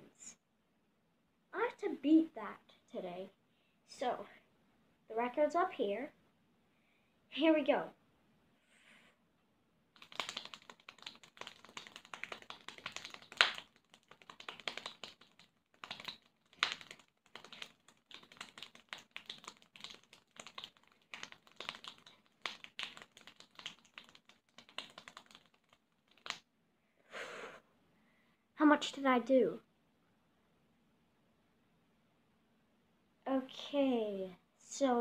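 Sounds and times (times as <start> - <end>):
child clapping rapidly: 10.0 - 26.4.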